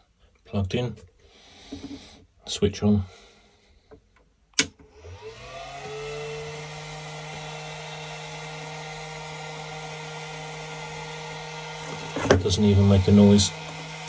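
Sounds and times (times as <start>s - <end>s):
switch click: 4.6s - 4.8s
cooling fan spinning: 4.8s - 14.0s.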